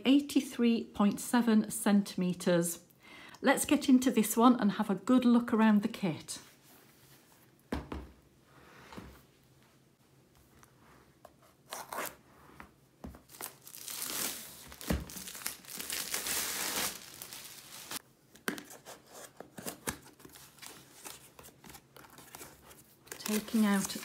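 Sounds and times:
plastic wrap tearing and crinkling: 13.3s - 18.0s, 19.8s - 24.0s.

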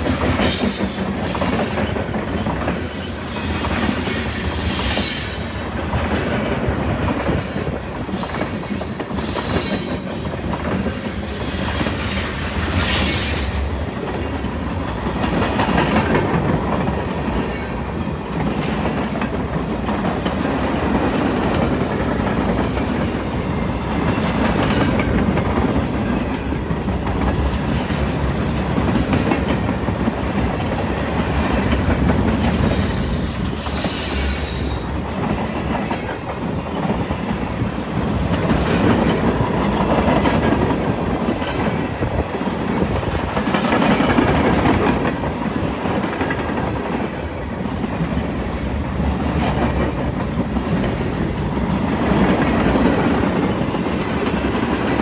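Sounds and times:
train wheels on rails: 0.0s - 55.0s
high wheel squeal: 3.4s - 5.7s, 8.1s - 10.3s, 11.0s - 14.5s, 32.4s - 35.0s.

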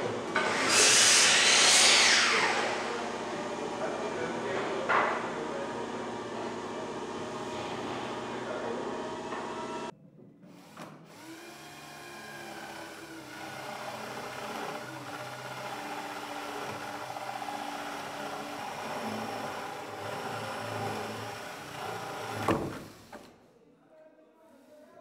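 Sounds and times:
power drill boring into wood: 10.6s - 22.7s.

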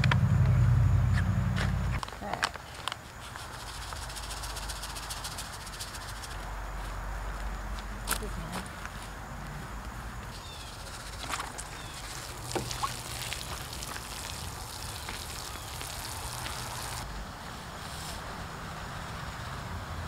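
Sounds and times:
water pouring onto soil: 11.0s - 17.0s.

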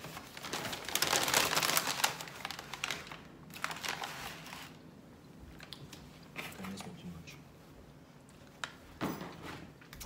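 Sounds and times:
paper and foil crinkling: 0.0s - 4.9s.

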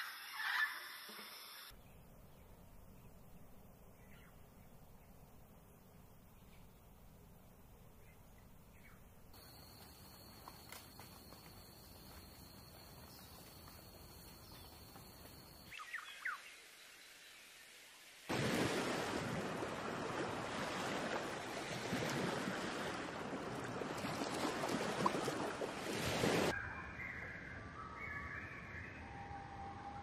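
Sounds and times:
sea surf breaking: 18.3s - 26.5s.

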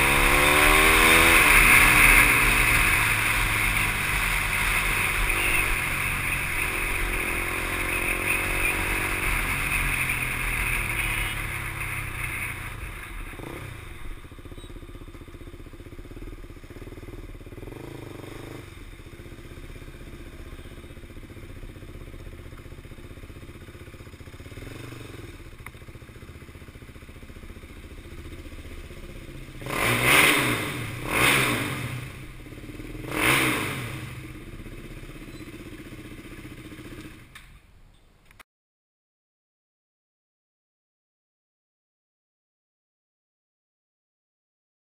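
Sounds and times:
loud engine bursts: 0.0s - 14.8s, 29.6s - 34.3s
motorcycle engine running: 0.0s - 37.4s.

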